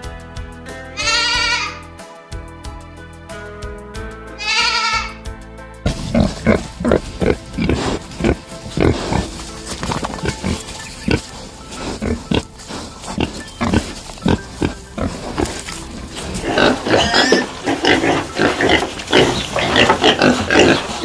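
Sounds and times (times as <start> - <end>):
pigs squealing: 1.0 - 1.9, 4.4 - 5.2, 6.0 - 21.0
pigs grunting: 5.9 - 21.0.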